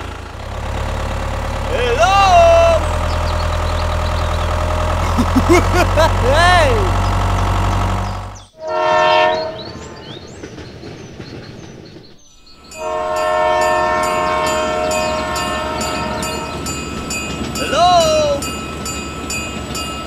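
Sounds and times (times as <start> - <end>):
low motor hum: 0.0 - 8.5
toy train horn blast: 8.6 - 9.6, 12.8 - 16.6
train wheels clickety-clack: 9.0 - 20.0.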